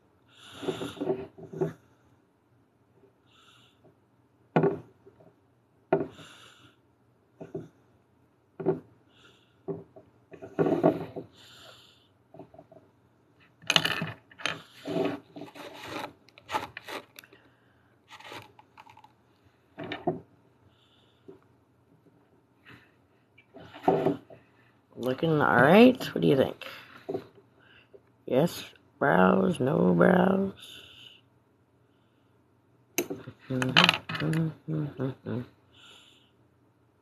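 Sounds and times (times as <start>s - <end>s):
sculpting tool scraping: 14.5s - 17.3s, 18.1s - 19.1s.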